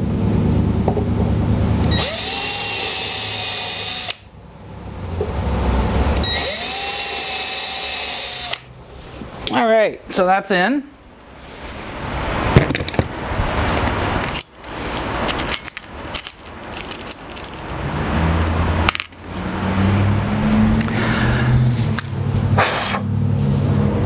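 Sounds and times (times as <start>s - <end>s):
metal screws clinking: 13.8s - 17.8s, 18.4s - 19.5s.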